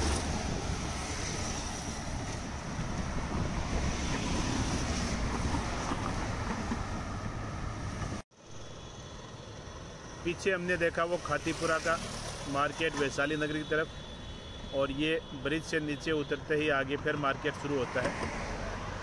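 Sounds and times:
wind rumbling on microphone: 0.0 - 8.2
road traffic noise: 0.0 - 19.0.

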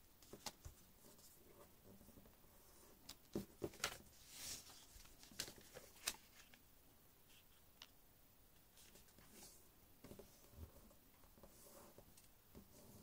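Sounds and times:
paper rustling: 3.6 - 6.6.

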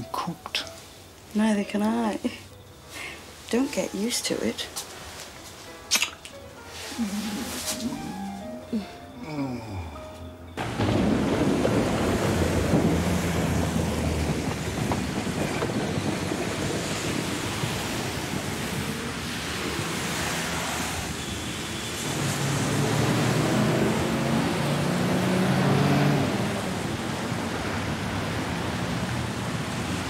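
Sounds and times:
tyres hissing on wet road: 10.6 - 30.0
passing vehicle engine hum: 16.9 - 30.0.

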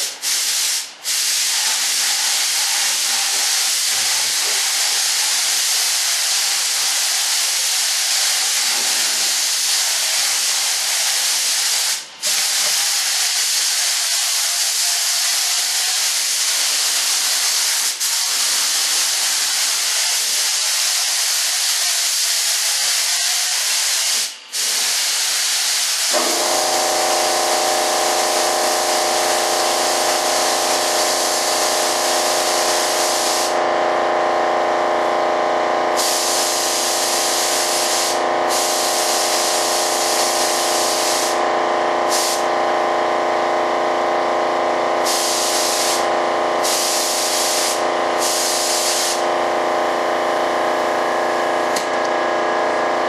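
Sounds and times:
spray gun hissing: 0.0 - 33.7, 35.8 - 43.0, 44.9 - 51.9
air compressor motor hum: 0.0 - 53.0.

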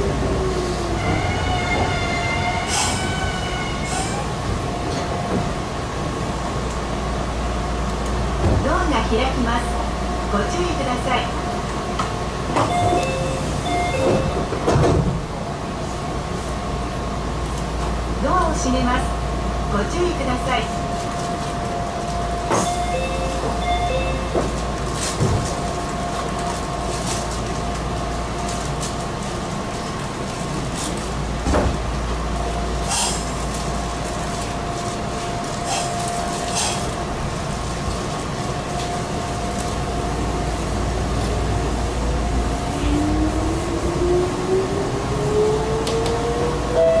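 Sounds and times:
door chime tones: 12.7 - 14.4.

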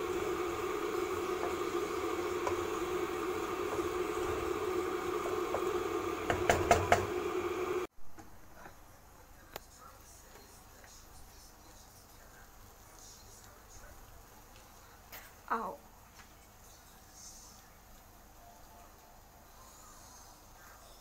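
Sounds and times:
steady hiss and hum: 0.0 - 21.0
sharp knocks against the pan: 6.3 - 7.1.

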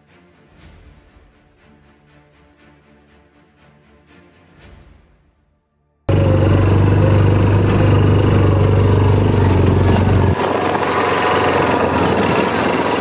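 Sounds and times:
low hum: 6.1 - 12.9
driving over rocky trail: 6.1 - 13.0
vehicle engine drone: 6.1 - 13.0.

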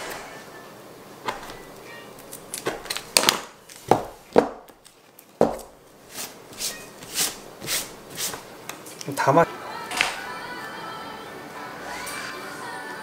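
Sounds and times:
knife chopping on cutting board: 5.4 - 5.8.

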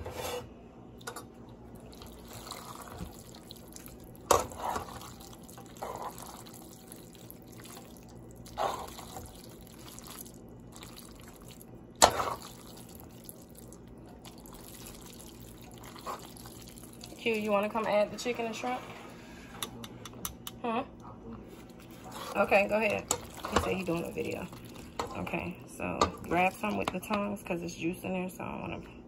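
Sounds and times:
sauce-coated noodles squelching: 1.8 - 17.5, 21.5 - 25.1.

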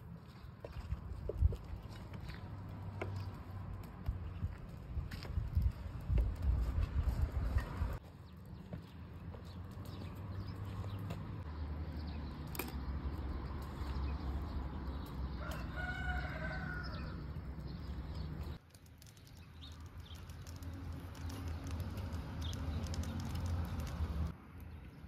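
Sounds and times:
rooster crowing: 15.4 - 17.2.

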